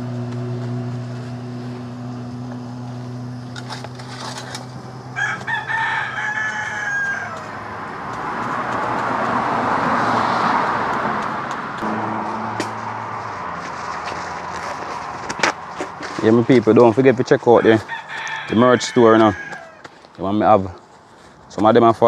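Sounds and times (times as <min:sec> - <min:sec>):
steady low hum: 0:00.0 - 0:08.5
rooster crowing: 0:05.0 - 0:08.4, 0:17.4 - 0:19.9.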